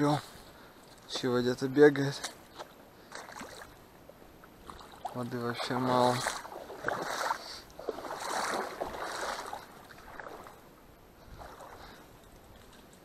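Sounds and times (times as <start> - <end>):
splashing in shallow water: 2.1 - 10.7, 11.3 - 13.0
rustling reeds: 4.6 - 10.6.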